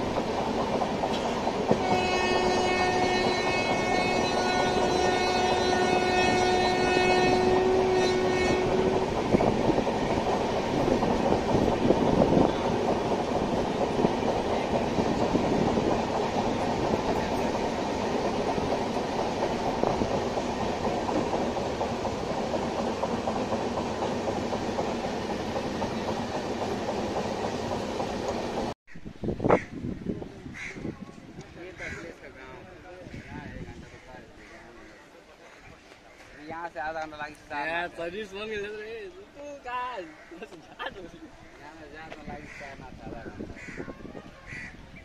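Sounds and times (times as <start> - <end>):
sharp clicks of train: 0.0 - 5.5, 8.3 - 28.7, 35.8 - 37.6
train wheels rumbling on rail: 0.0 - 37.8
train horn: 1.7 - 9.2.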